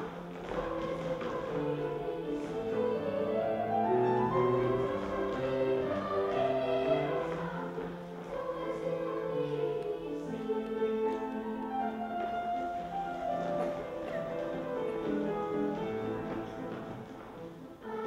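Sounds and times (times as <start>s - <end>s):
children's choir singing: 0.0s - 18.0s
piano accompaniment: 0.0s - 18.0s.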